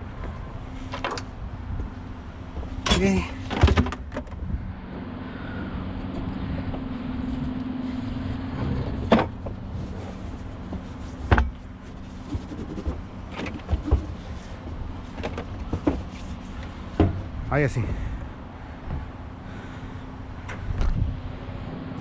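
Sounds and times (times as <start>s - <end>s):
steady low hum: 0.0s - 22.0s
items knocking in truck bed: 16.8s - 17.3s.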